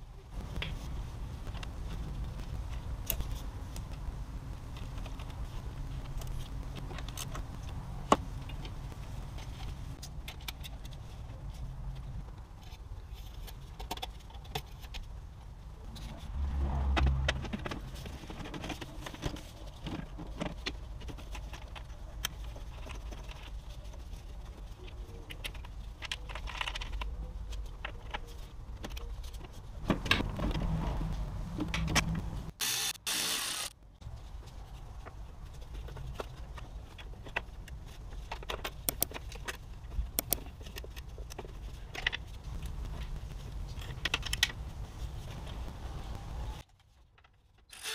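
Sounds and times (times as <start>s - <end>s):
plastic and rubber parts clicking: 35.6s - 43.1s.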